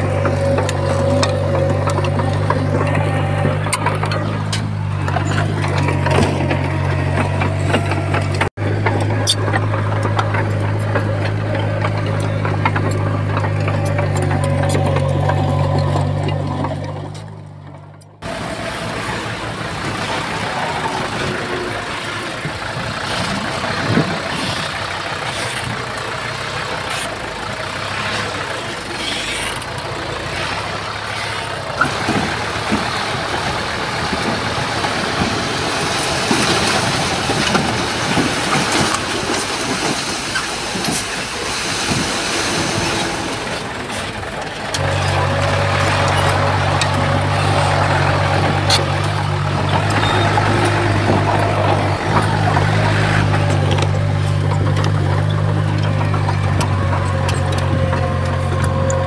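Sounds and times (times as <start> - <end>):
bulldozer diesel engine: 0.0 - 59.0
deep loud engine hum: 0.0 - 59.0.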